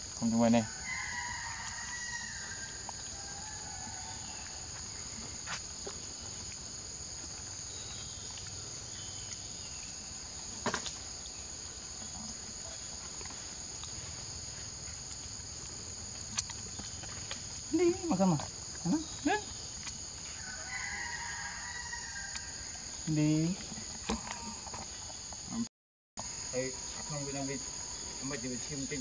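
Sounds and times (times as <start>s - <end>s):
insects droning: 0.0s - 29.0s
rooster crowing: 0.6s - 4.8s, 20.3s - 23.0s.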